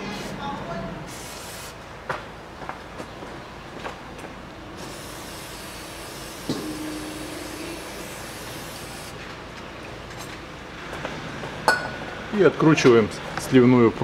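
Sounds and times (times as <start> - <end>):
aerosol spray hissing: 1.1 - 1.8, 4.8 - 9.2
steady ringing tone: 6.6 - 8.0.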